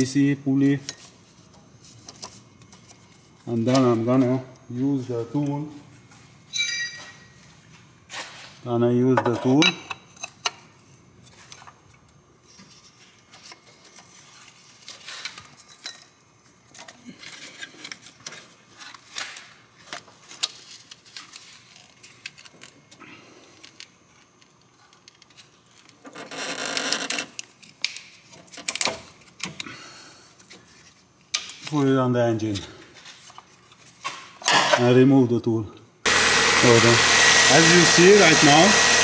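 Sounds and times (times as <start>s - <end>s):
loud harsh noise: 36.1s - 39.0s.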